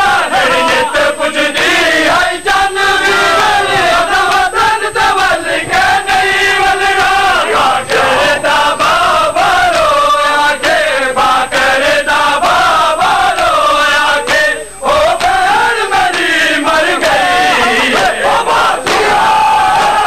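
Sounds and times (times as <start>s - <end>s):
men chanting a lament: 0.0s - 20.0s
hands slapping on chests: 3.1s - 4.6s, 8.8s - 10.0s, 12.4s - 13.6s, 14.2s - 16.3s, 17.4s - 20.0s.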